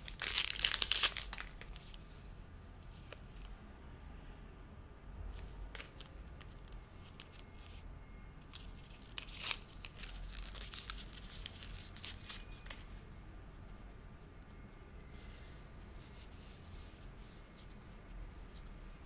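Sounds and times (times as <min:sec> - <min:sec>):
foil sachet tearing: 0:00.0 - 0:01.8, 0:08.8 - 0:12.8
packet crinkling: 0:00.0 - 0:02.0, 0:08.8 - 0:12.9.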